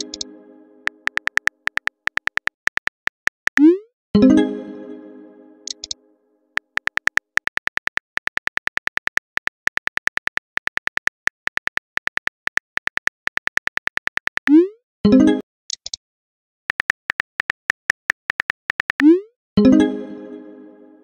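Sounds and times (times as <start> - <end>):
phone keyboard key clicks: 1.0 - 3.6, 6.6 - 14.4.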